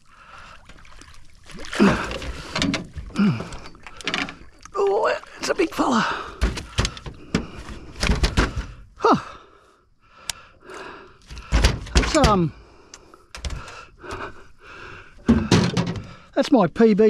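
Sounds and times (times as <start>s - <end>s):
thuds against boat hull: 15.3s - 16.1s.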